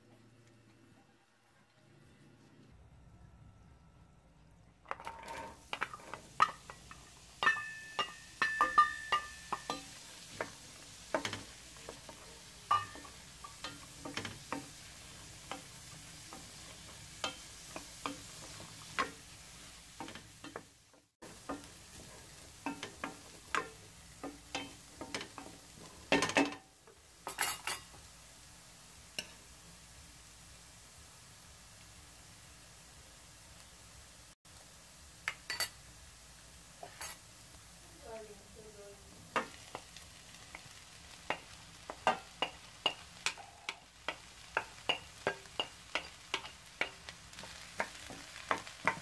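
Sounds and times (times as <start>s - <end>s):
carrots sizzling in a pan: 4.9s - 49.0s
wooden spatula scraping a pan: 39.3s - 49.0s.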